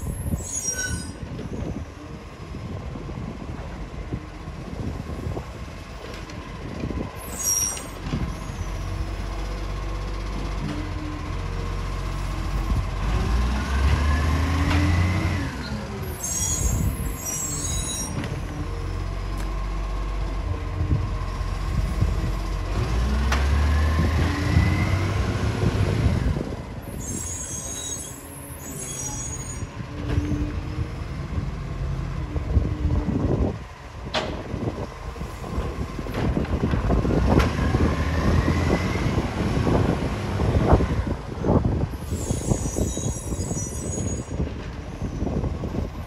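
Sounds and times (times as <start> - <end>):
diesel engine revving: 8.2 - 17.4, 18.4 - 26.8, 29.7 - 41.7.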